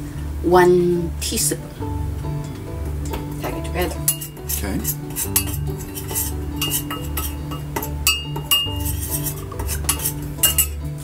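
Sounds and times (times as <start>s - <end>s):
quiet background music: 0.0s - 11.0s
utensil clinking against bowl: 2.5s - 10.8s.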